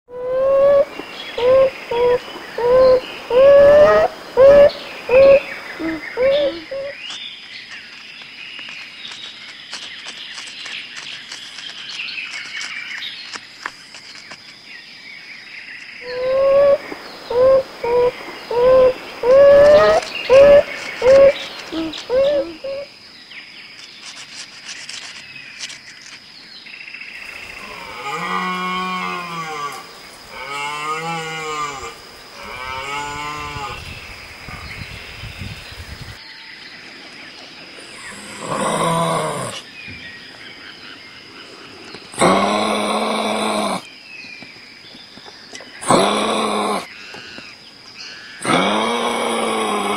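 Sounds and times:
animal lowing calls: 0.1 - 7.0, 16.0 - 22.9, 45.8 - 46.9.

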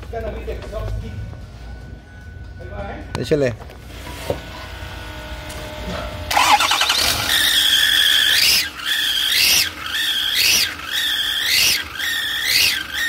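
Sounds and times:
high whine from revving engine: 4.5 - 13.0
diesel engine starting: 5.9 - 13.0.

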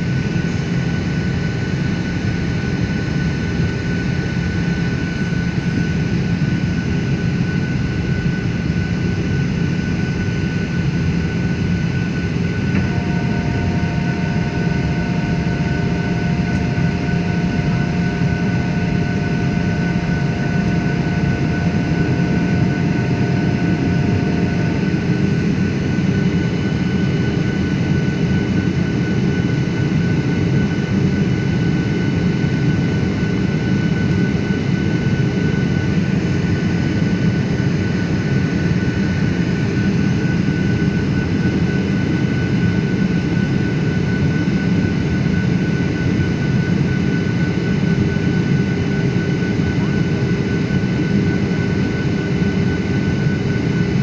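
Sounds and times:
jet engine and airflow rush: 0.0 - 54.0
thin steady whine: 0.0 - 54.0
higher steady tones: 12.7 - 25.1.

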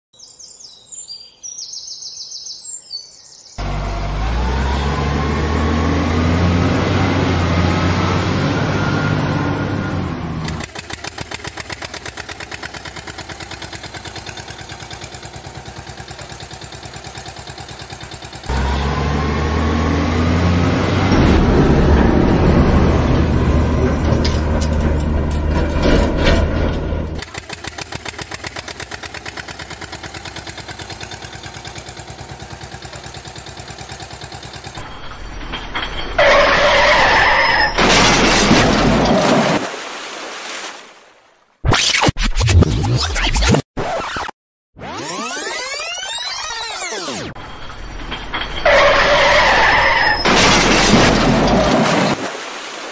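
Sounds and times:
diesel truck engine revving and idling: 3.6 - 34.8.

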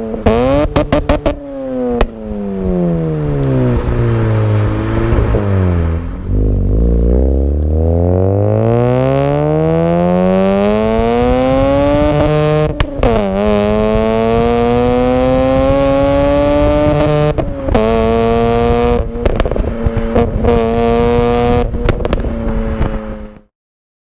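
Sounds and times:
exhaust crackles and pops: 0.2 - 2.2, 10.6 - 23.5
rotary engine revving: 2.7 - 21.7.

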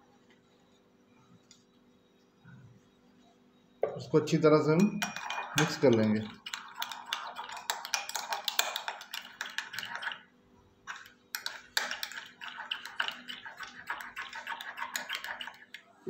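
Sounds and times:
utensil whisking in glass bowl: 4.3 - 15.9.

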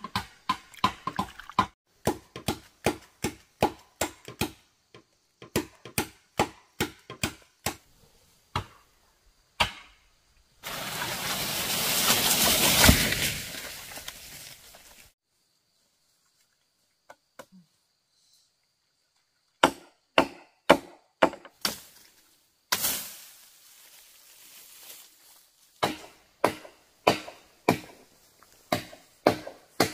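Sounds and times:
blade chopping into wood: 9.6 - 10.0, 19.6 - 21.9, 25.8 - 28.0, 28.7 - 29.9
tree cracking and falling: 10.6 - 15.1
rush of leaves and branches: 10.6 - 15.2, 21.6 - 26.0.

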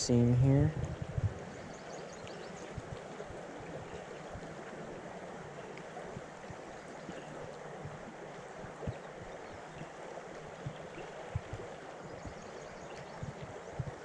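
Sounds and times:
soft low thumps: 0.0 - 1.6, 7.8 - 9.6, 10.5 - 12.4, 13.0 - 14.0
river flowing: 0.0 - 14.0.

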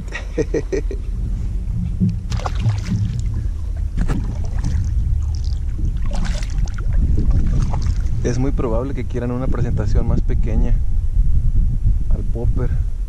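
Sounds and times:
wind rumble on microphone: 0.0 - 13.0
paddle splashing in water: 2.1 - 8.2.

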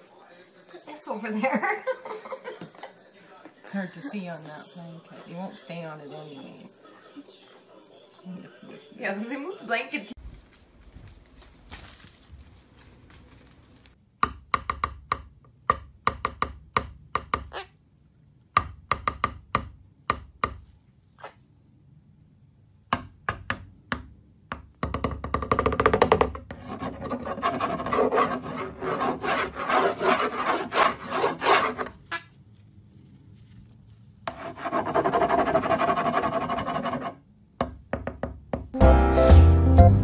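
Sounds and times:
cockatoo rasping: 26.5 - 32.3.

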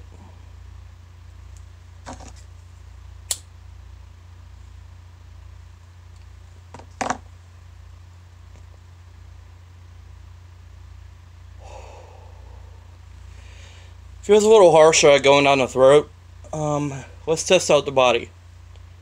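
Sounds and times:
steady low hum: 0.0 - 19.0
lighter click: 3.3 - 3.5.

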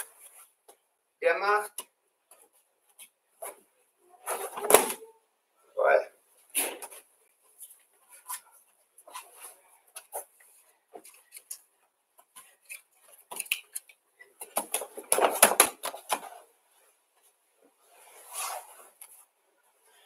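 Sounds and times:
cloth rustle: 14.8 - 20.0.

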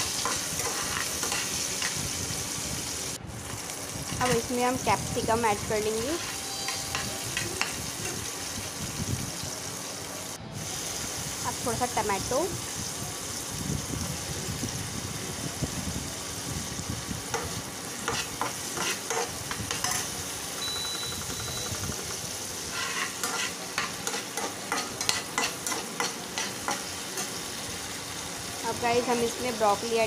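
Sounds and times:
metal spatula scraping pan: 0.0 - 2.0, 5.9 - 8.3, 17.4 - 20.1, 22.6 - 27.4
vegetables sizzling in oil: 0.0 - 30.0
cooktop beep: 5.4 - 8.4, 19.7 - 22.3.

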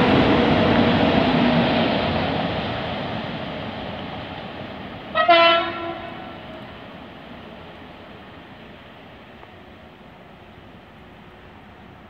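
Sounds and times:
freight train rumbling past: 0.0 - 12.0
train horn blast: 5.1 - 6.6.

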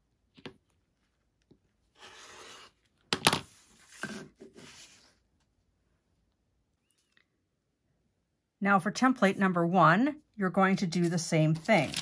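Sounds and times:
ruler sliding on cutting mat: 2.0 - 2.8, 3.6 - 5.2.

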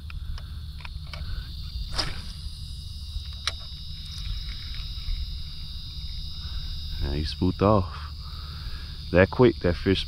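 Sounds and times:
insects chirring: 0.0 - 10.0
low rumble: 1.8 - 7.2.

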